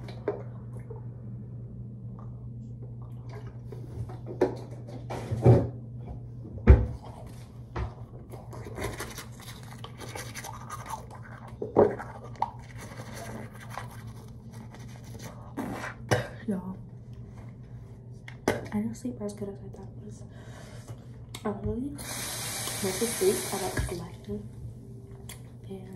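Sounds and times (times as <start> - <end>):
steady low hum: 0.0 - 25.9
toothbrush scrubbing teeth: 8.3 - 16.1.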